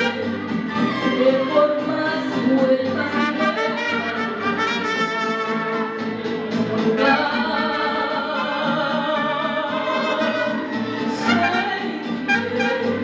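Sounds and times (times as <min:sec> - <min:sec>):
trumpets playing melody: 0:00.0 - 0:01.4, 0:03.1 - 0:06.0, 0:07.0 - 0:13.0
mariachi band playing: 0:00.0 - 0:13.0
strummed acoustic guitars: 0:00.0 - 0:13.0.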